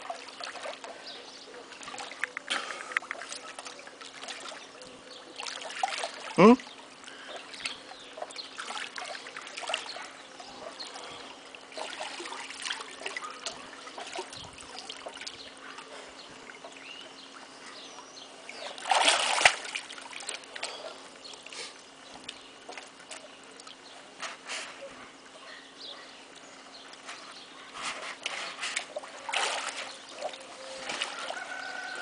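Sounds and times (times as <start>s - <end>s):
faint steady hum: 0.0s - 32.0s
pool water sloshing: 0.0s - 32.0s
water splash: 18.8s - 20.6s, 28.6s - 31.4s.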